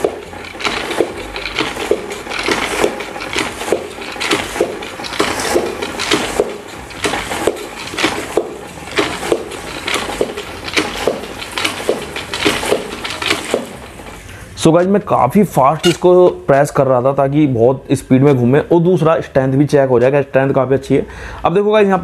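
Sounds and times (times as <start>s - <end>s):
spin mop handle clacking: 0.0s - 15.0s, 15.8s - 16.4s
mop head spinning: 0.0s - 16.6s.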